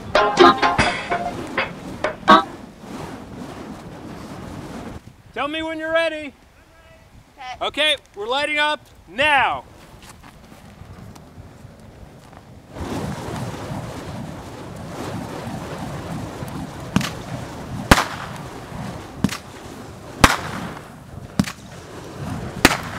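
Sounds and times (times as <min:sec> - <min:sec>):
rushing flame: 0:00.0 - 0:07.4, 0:08.0 - 0:22.9
sharp cracks: 0:12.8 - 0:21.8, 0:22.6 - 0:22.9.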